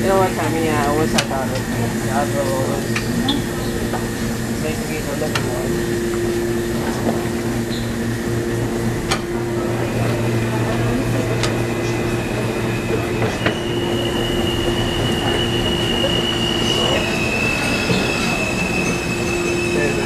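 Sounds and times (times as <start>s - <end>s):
train wheels squealing on rails: 12.6s - 20.0s.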